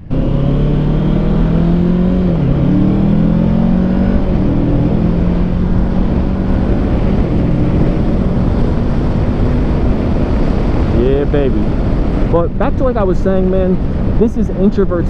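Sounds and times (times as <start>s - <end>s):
wind and road rush: 0.0s - 15.0s.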